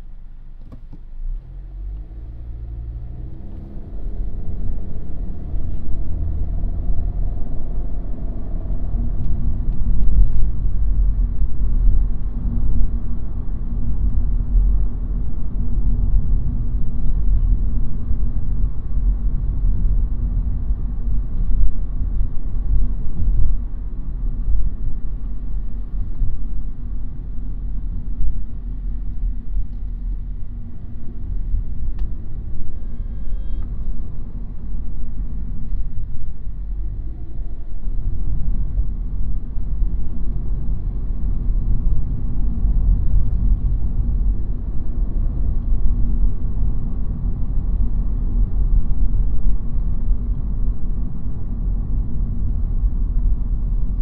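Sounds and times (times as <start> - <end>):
car accelerating: 1.3 - 9.9.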